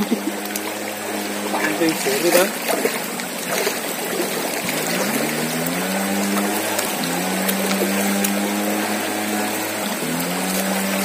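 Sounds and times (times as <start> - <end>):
river rushing and swirling: 0.0 - 11.0
steady low hum: 0.0 - 11.0.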